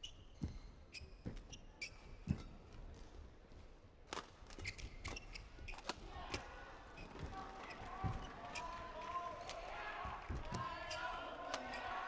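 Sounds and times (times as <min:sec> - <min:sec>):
shoe squeaks on court: 0:00.0 - 0:02.5, 0:04.6 - 0:05.8.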